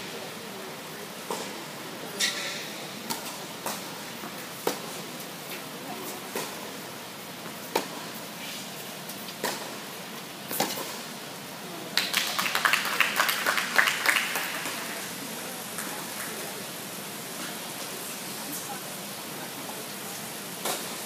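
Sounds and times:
quick clapping: 12.0 - 14.9.

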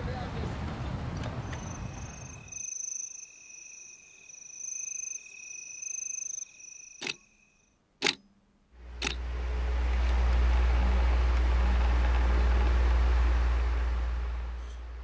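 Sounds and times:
crickets chirping: 1.4 - 7.8
wall clock ticking: 8.0 - 8.2, 9.0 - 9.2.

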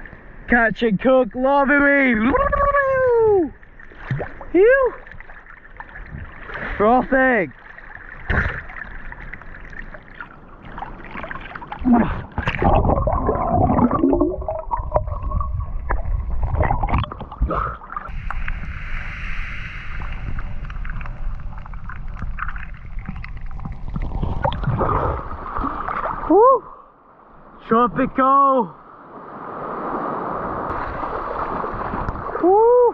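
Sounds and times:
water sloshing and gurgling: 1.5 - 32.9
bubbles: 7.9 - 26.3
low underwater rumble: 8.5 - 26.3
short warbling tones: 12.7 - 17.2
hiss: 18.1 - 20.7.

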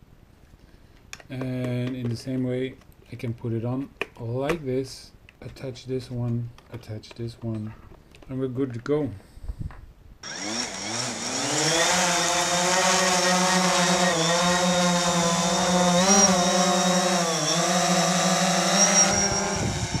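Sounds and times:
motor spinning up: 10.2 - 20.0.

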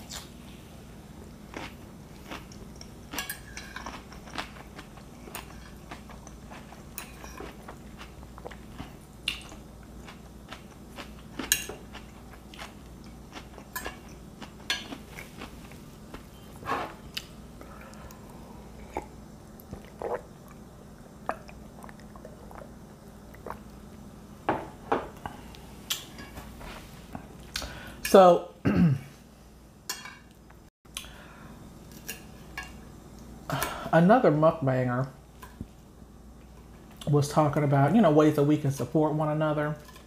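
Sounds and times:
crisp salad chewing: 1.5 - 16.3.

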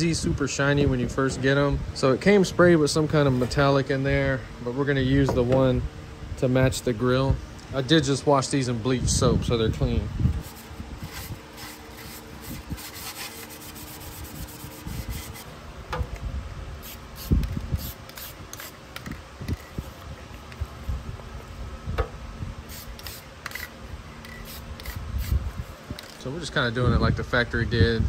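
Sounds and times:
hands rubbing on plastic: 10.4 - 15.5
masking paper being smoothed: 10.4 - 15.5
scuff pad scrubbing: 10.4 - 15.5.

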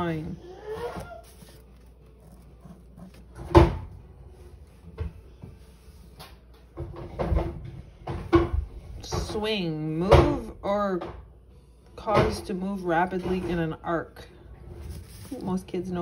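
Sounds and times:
knocks and thuds handling book: 0.0 - 4.2, 14.8 - 16.0.

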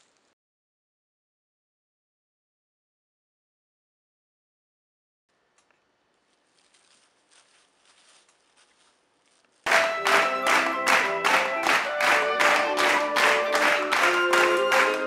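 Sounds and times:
plastic bag rustling: 6.1 - 9.7
music with fast beat and melody: 9.7 - 15.0.

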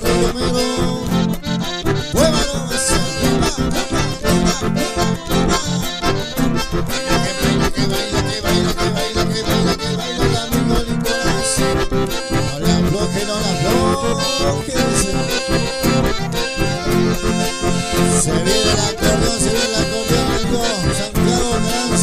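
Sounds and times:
button accordions playing: 0.0 - 22.0
strummed acoustic guitar: 0.0 - 22.0.

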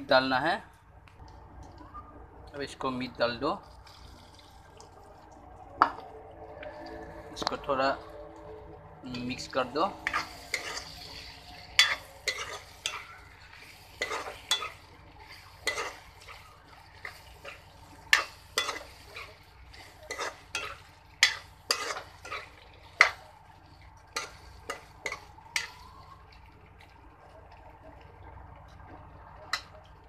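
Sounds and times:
frying sizzle: 2.6 - 30.0
metal spatula scraping a pan: 9.1 - 23.2.

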